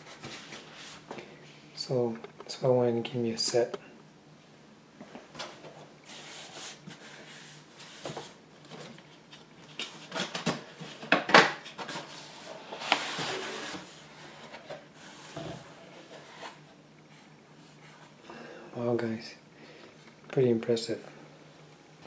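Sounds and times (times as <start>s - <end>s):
packaging rubbing and sliding: 11.9s - 16.7s.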